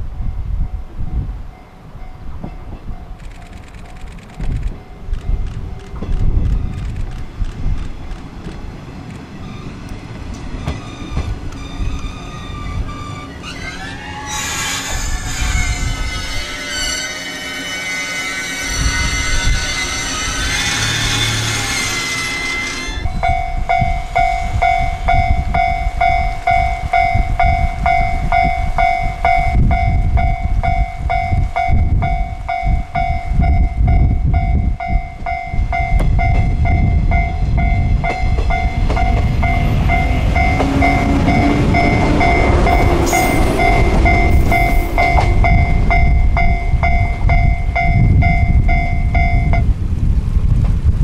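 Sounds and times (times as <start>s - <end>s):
electric train rumbling past: 0.0s - 51.0s
two-tone crossing bell ringing: 18.6s - 49.7s.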